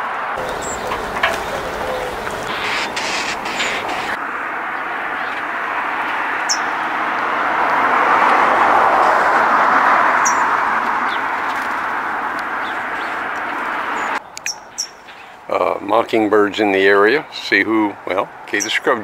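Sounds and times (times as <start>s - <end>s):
high bird chirps: 0.4s - 4.2s
steady rushing noise: 0.4s - 4.3s.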